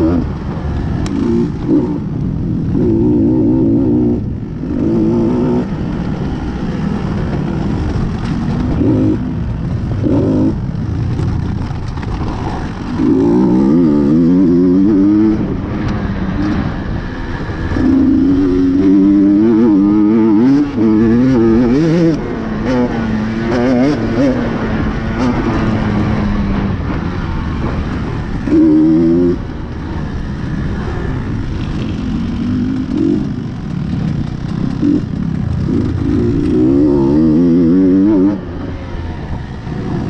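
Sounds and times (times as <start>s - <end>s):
dirt bike engine revving: 0.0s - 38.7s.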